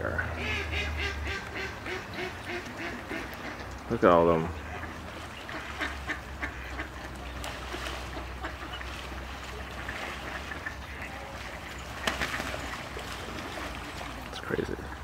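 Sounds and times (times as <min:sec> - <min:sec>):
ducks quacking: 0:00.0 - 0:11.8.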